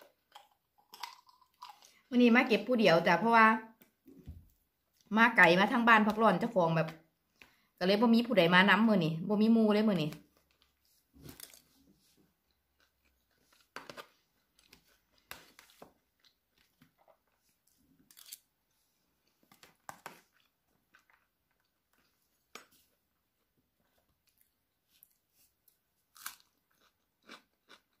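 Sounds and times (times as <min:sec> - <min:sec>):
person chewing food: 0:00.0 - 0:02.1, 0:10.5 - 0:28.0.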